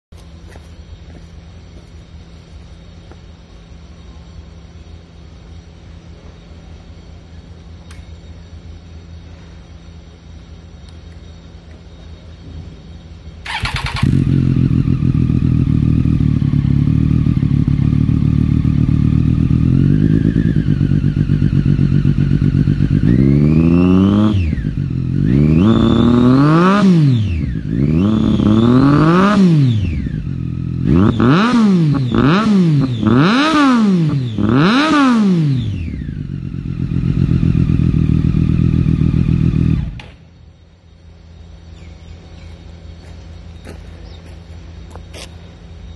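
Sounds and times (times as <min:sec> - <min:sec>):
motorcycle engine revving and idling: 0:12.8 - 0:40.8.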